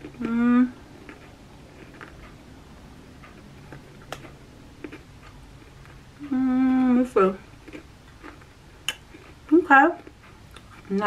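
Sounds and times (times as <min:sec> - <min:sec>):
person humming mmm: 0:00.2 - 0:00.8, 0:06.2 - 0:06.9
chewing crunchy snack: 0:01.0 - 0:02.4, 0:03.2 - 0:06.0, 0:07.3 - 0:11.0.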